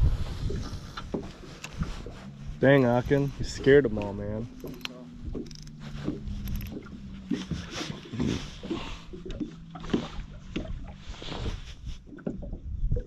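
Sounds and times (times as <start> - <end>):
steady low hum: 0.0 - 12.7
waves slapping metal boat hull: 0.4 - 13.0.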